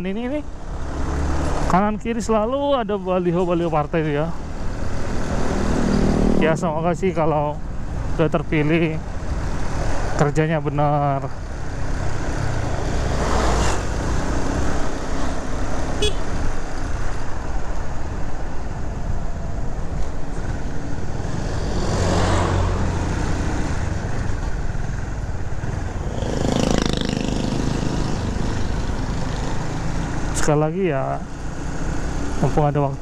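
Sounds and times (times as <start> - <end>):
road and wind noise: 0.0 - 33.0
motorcycle engine running: 22.9 - 30.4.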